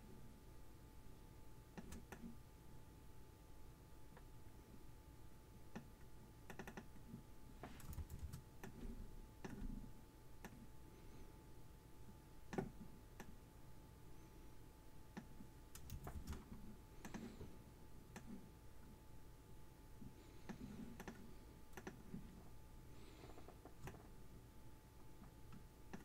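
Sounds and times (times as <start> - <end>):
mouse and keyboard clicks: 1.8 - 2.3, 6.5 - 7.0, 7.6 - 9.8, 20.5 - 22.2, 25.5 - 26.0.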